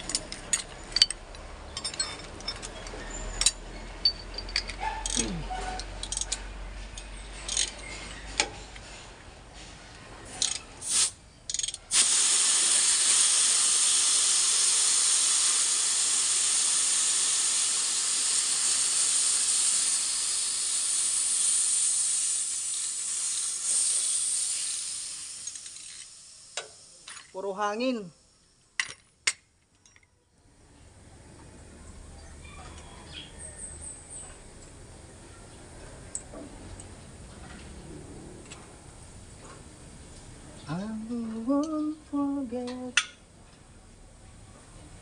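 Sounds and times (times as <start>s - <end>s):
wrenches clinking on fittings: 0.0s - 8.6s, 11.5s - 11.8s
gas hissing from line: 10.4s - 11.2s, 11.9s - 27.1s.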